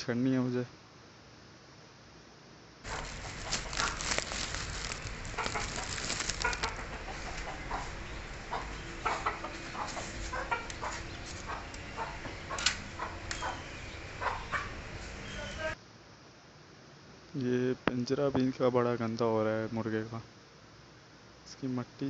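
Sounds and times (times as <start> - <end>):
knocks and rustles of cages: 2.9 - 13.6
chickens clucking: 2.9 - 15.8.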